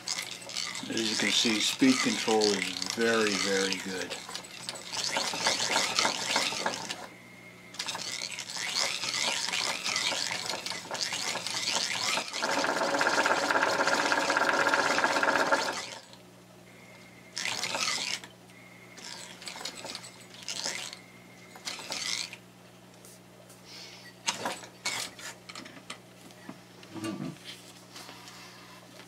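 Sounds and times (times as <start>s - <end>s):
sewing machine needle strokes: 0.0s - 7.1s, 7.7s - 16.2s, 17.4s - 18.3s, 19.0s - 22.4s
sewing machine whine: 0.0s - 16.2s, 16.9s - 22.4s.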